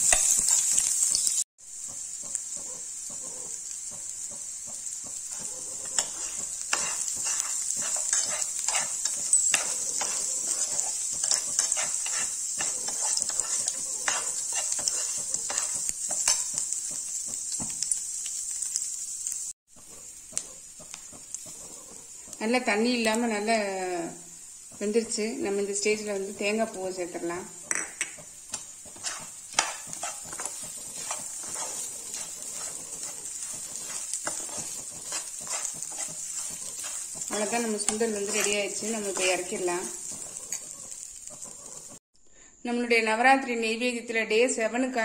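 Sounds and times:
food sizzling in a pan: 0.0s - 42.0s
metal spatula scraping and stirring: 5.2s - 17.8s, 24.7s - 42.0s.

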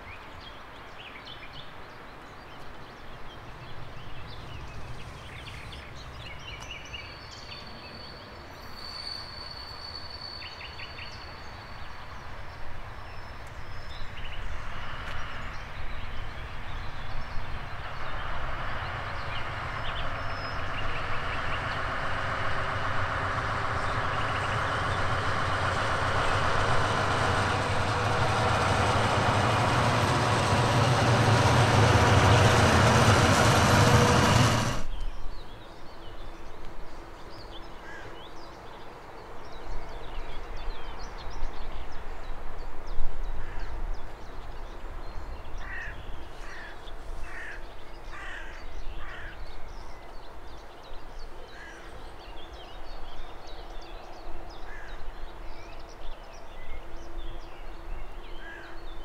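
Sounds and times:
train passing on track: 0.0s - 59.0s
low rumble: 17.2s - 35.0s.

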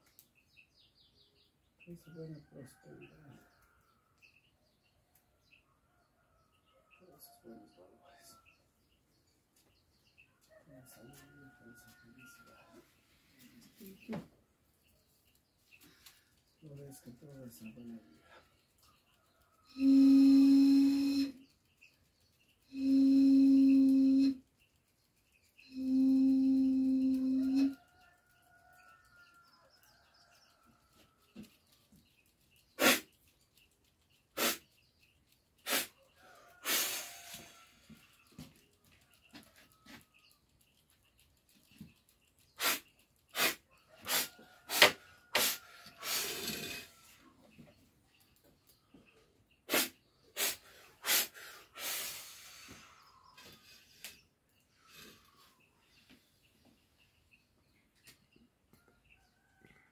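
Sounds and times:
person blowing breathy blasts: 19.8s - 21.4s, 22.7s - 24.4s, 32.8s - 33.1s, 34.4s - 34.6s, 35.6s - 35.9s, 36.6s - 37.6s, 42.6s - 46.9s, 49.7s - 53.0s
person spraying liquid from mouth: 32.8s - 33.1s, 34.4s - 34.7s, 35.6s - 35.9s, 36.6s - 37.4s, 42.6s - 46.4s, 49.7s - 52.7s.

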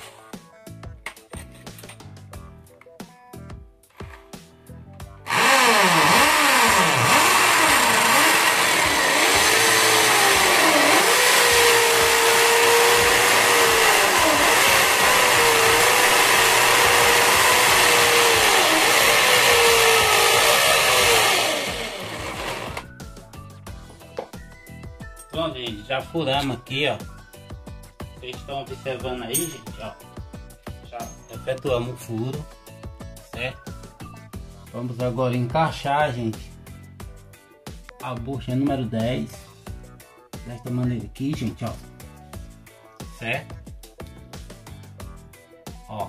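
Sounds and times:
electric drill boring into masonry: 5.2s - 22.9s.

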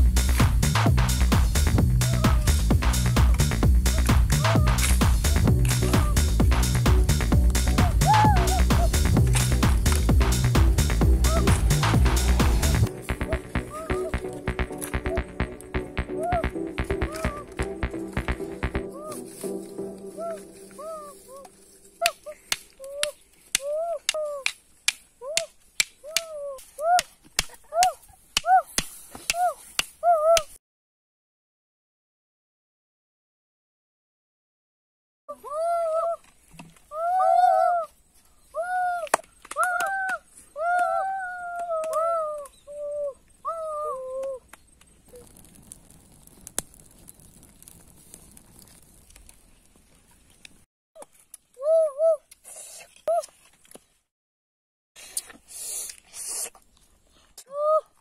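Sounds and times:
rising and falling animal call: 2.0s - 6.4s, 7.8s - 9.1s, 11.2s - 14.3s, 20.2s - 24.1s, 38.6s - 44.5s
dry grass and sticks crackling: 2.0s - 30.5s, 35.9s - 42.6s, 44.0s - 51.7s
fire ticks and pops: 2.8s - 18.9s, 44.2s - 50.6s
child hooting sung notes: 7.8s - 9.0s, 13.2s - 14.3s, 16.0s - 17.5s, 18.8s - 24.5s, 36.9s - 37.9s, 38.5s - 44.4s
dry sticks snapping: 21.4s - 30.5s.

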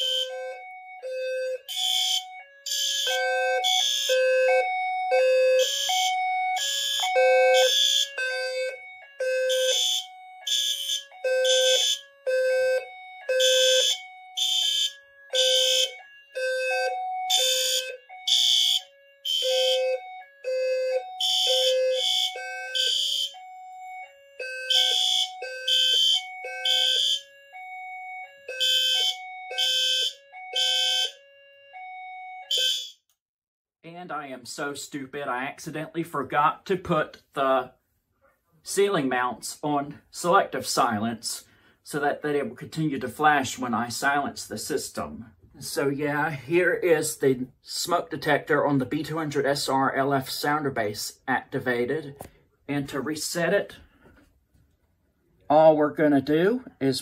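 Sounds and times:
low-pitched alarm tone: 0.0s - 33.0s
fire alarm horns blasting: 0.0s - 33.1s.

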